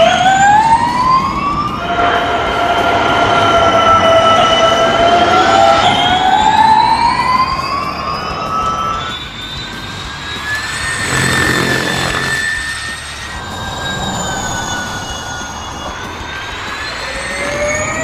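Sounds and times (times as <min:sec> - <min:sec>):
electric race car whine: 0:00.0 - 0:18.0
car passing rush: 0:10.9 - 0:12.6.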